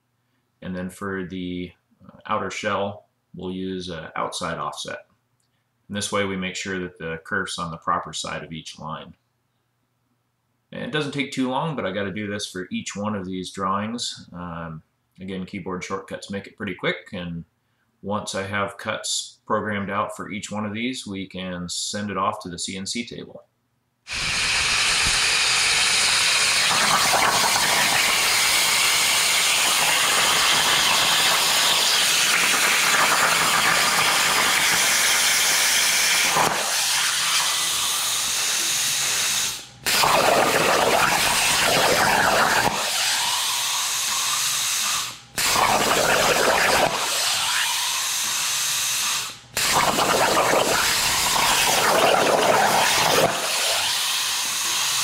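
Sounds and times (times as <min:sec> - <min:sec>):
plasma cutter hissing: 0:24.1 - 0:55.0.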